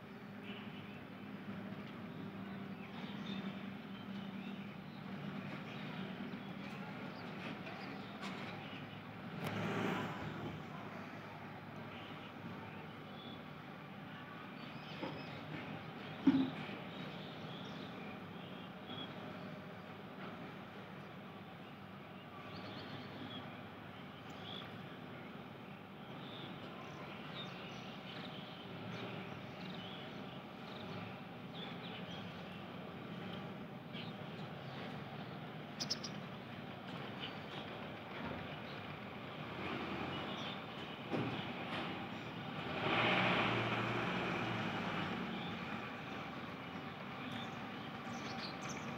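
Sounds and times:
background traffic: 0.0s - 48.9s
vehicle passing: 9.3s - 11.1s, 42.4s - 46.3s.

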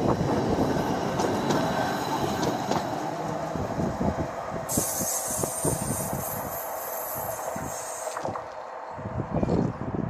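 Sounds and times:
tram wheels rumbling on rails: 0.0s - 10.0s
high hiss: 4.7s - 8.3s.

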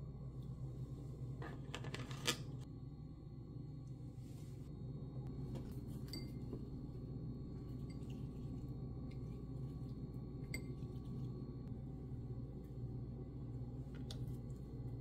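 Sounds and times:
steady low hum: 0.0s - 15.0s
ceramic and glass clinking: 6.0s - 6.6s, 10.4s - 10.9s.

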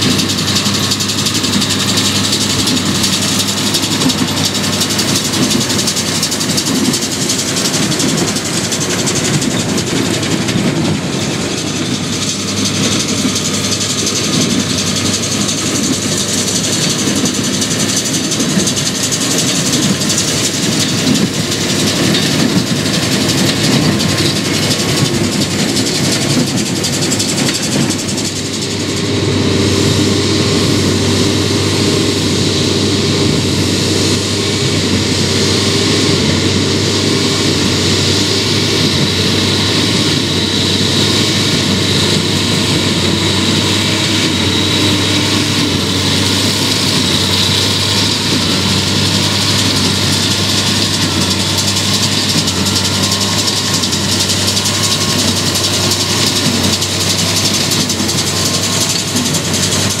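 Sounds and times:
square baler working: 0.0s - 60.0s
tractor engine under load: 0.0s - 60.0s.

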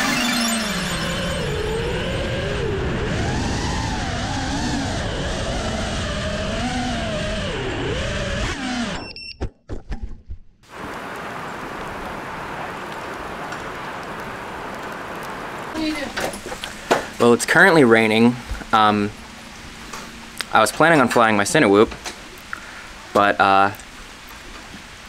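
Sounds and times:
quadcopter motors whining: 0.0s - 9.1s
rushing air: 10.7s - 20.3s
rain hiss: 10.7s - 25.0s.

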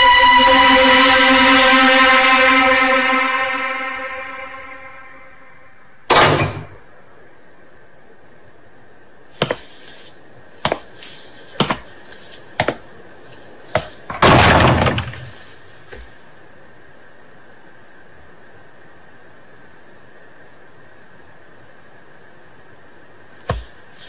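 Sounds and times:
heavy wooden door banging: 6.1s - 6.8s, 13.8s - 15.3s
sharp knocks: 6.1s - 6.8s, 9.4s - 9.6s, 12.6s - 12.8s, 13.8s - 15.3s, 23.5s - 23.7s.

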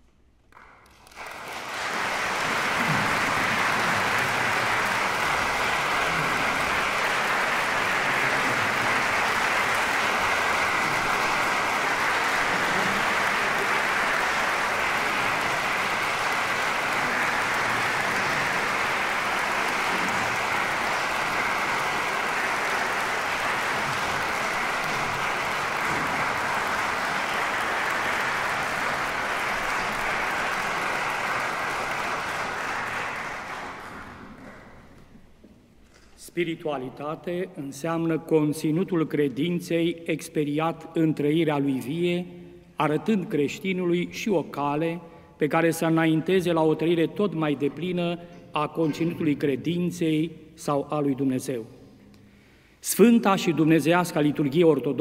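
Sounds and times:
audience applauding: 0.5s - 35.1s.

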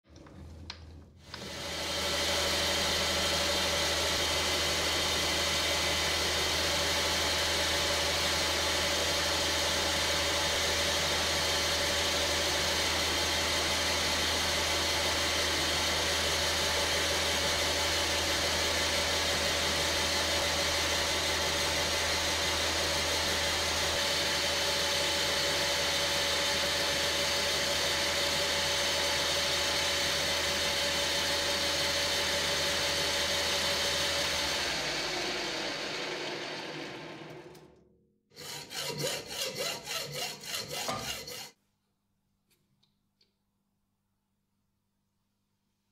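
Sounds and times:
metal lathe humming and whining: 38.4s - 41.5s.

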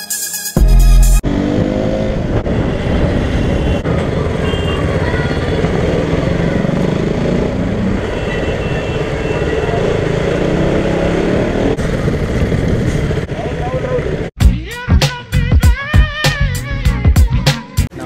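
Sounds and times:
music with heavy beat: 0.0s - 1.2s, 14.4s - 17.9s
wind and road noise: 1.2s - 14.4s
motorcycle engine running: 3.8s - 8.3s.

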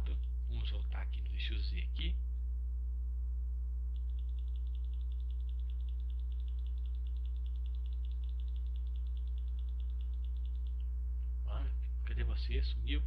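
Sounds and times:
electrical mains hum: 0.0s - 13.0s
rapid high pulsing beep: 4.0s - 10.8s.

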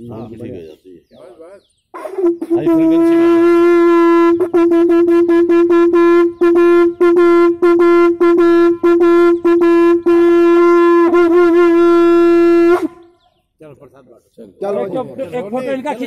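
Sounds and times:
conch shell blasts: 2.0s - 13.2s.

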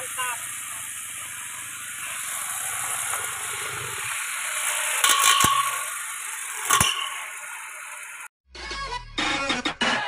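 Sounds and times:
steady high hiss: 0.0s - 8.3s
sharp metallic clatters: 4.9s - 8.2s.

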